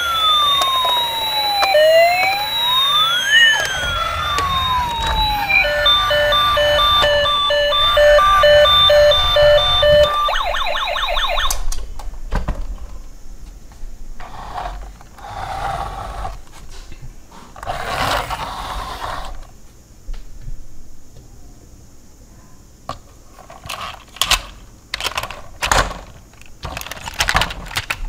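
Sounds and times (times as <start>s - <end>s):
toy electronic siren: 0.0s - 11.6s.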